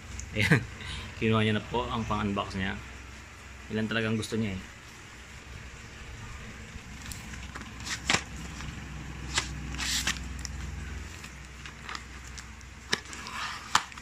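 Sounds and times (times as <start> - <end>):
low handling rumble: 4.5 - 12.8
packing tape tearing: 7.0 - 14.0.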